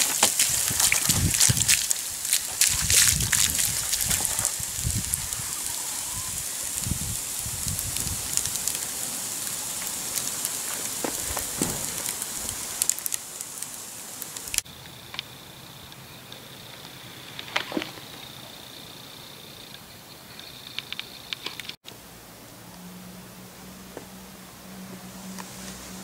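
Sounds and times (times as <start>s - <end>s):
water splashing on wood: 0.0s - 14.6s
fire hissing: 0.0s - 17.5s, 23.7s - 26.0s
fire crackling: 0.0s - 19.4s.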